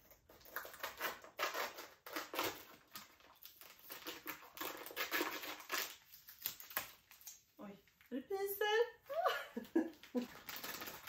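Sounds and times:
plastic packaging crinkling: 0:00.0 - 0:07.6, 0:09.6 - 0:11.0.

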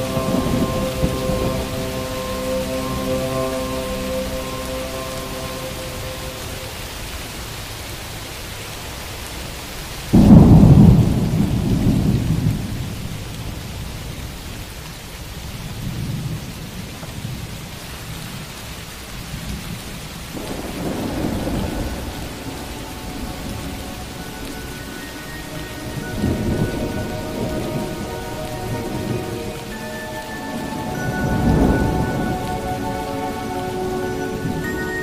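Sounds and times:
thunder rumbling: 0:00.0 - 0:06.8, 0:10.1 - 0:14.0, 0:19.6 - 0:35.0
steady rain: 0:00.0 - 0:35.0.

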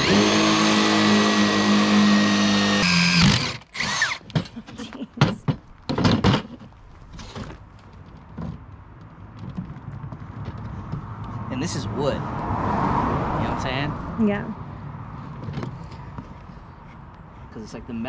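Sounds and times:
cordless drill boring wood: 0:00.0 - 0:04.4
knocks and clatter: 0:04.2 - 0:11.4.

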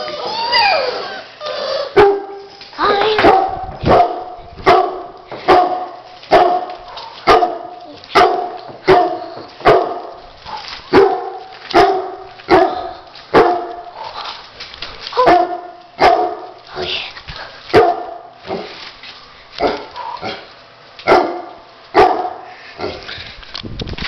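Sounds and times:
dog barking: 0:02.0 - 0:02.4, 0:03.2 - 0:10.0, 0:10.9 - 0:13.7, 0:15.2 - 0:16.4, 0:17.7 - 0:18.2, 0:21.1 - 0:22.4.

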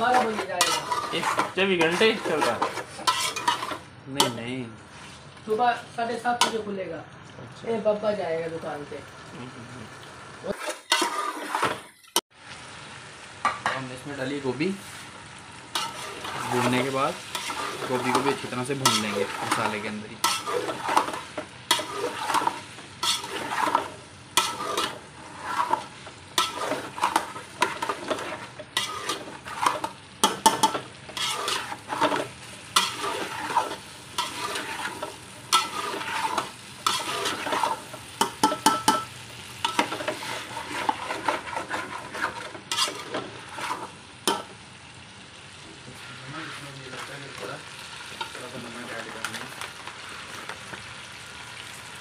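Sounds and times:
metal spatula scraping pot: 0:00.0 - 0:05.2, 0:10.5 - 0:12.2, 0:15.8 - 0:44.5
food sizzling in frying: 0:00.0 - 0:52.0.

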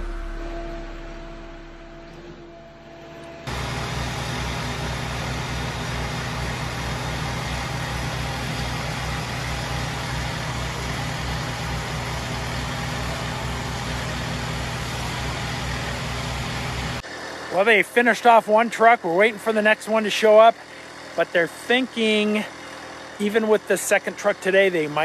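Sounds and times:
heavy truck engine idling: 0:00.0 - 0:18.1, 0:19.2 - 0:25.0.

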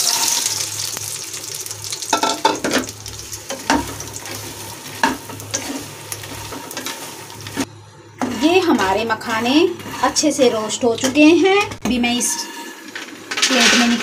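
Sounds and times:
frying sizzle: 0:00.0 - 0:14.0
spatula scraping pan: 0:03.4 - 0:14.0.

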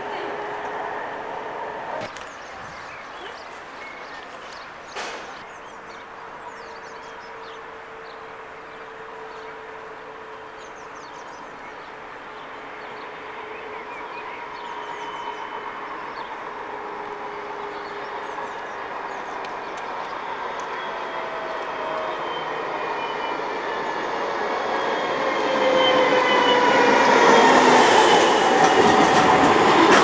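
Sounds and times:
tram running along track: 0:00.0 - 0:30.0
birds chirping: 0:02.1 - 0:09.7.

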